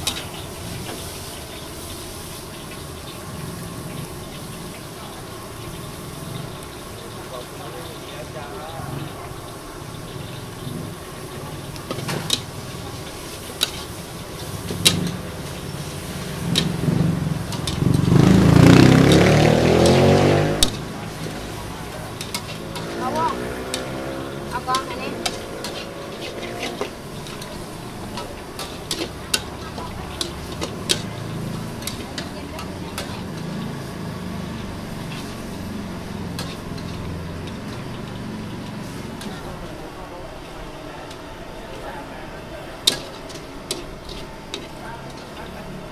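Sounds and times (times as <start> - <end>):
vehicle engine passing: 2.9 - 45.9
metal spatula clanking on wok: 20.6 - 24.0, 24.6 - 33.6, 36.2 - 38.0, 42.8 - 45.4.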